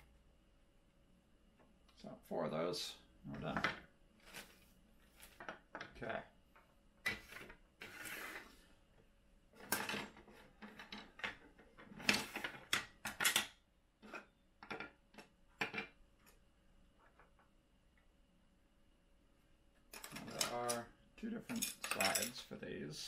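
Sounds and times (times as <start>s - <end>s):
plastic parts clacking on wood: 9.6s - 16.0s.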